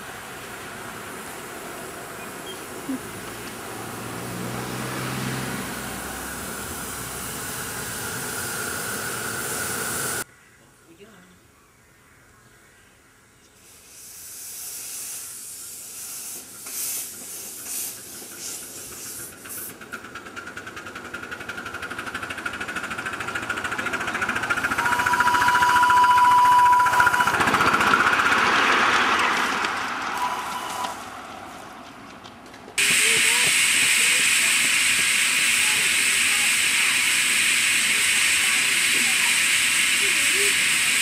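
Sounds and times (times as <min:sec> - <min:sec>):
steam locomotive exhaust beats: 0:00.0 - 0:10.2, 0:13.8 - 0:41.0
steam whistle: 0:24.7 - 0:27.6, 0:30.2 - 0:31.0.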